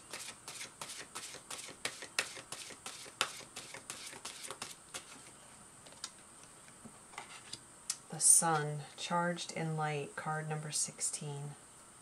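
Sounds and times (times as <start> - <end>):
cards being shuffled: 0.0 - 5.3.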